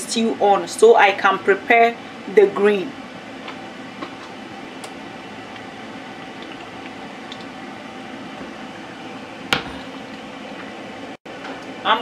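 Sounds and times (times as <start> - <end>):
steady mechanical hum: 0.0 - 12.0.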